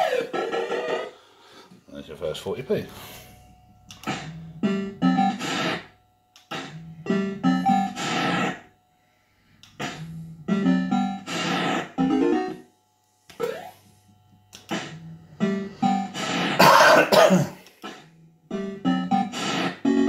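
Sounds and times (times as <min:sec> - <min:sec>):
fruit machine electronic tunes: 0:03.3 - 0:08.9, 0:09.6 - 0:17.0, 0:17.8 - 0:20.0
sharp clicks: 0:14.5 - 0:14.9.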